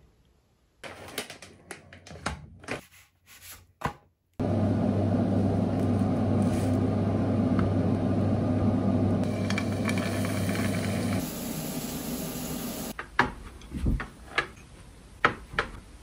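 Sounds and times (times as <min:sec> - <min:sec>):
extractor fan humming: 0:04.4 - 0:13.0.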